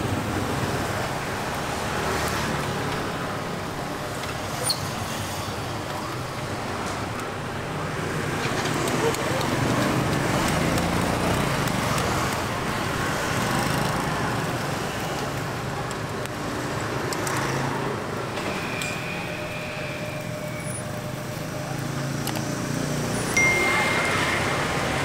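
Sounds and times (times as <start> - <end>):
street traffic passing: 0.0 - 25.0
thin held tone: 23.2 - 25.0.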